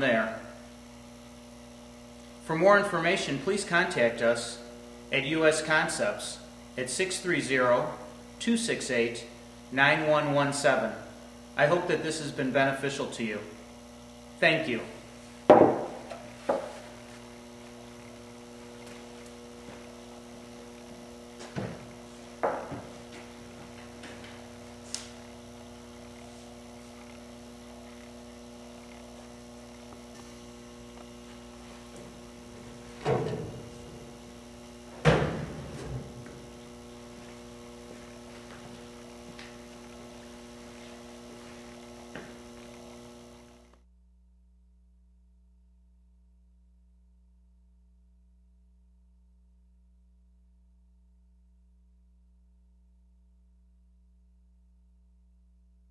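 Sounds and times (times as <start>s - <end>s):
steady electrical hum: 0.0s - 55.9s
short knocks and thumps: 15.5s - 16.8s, 21.4s - 23.0s.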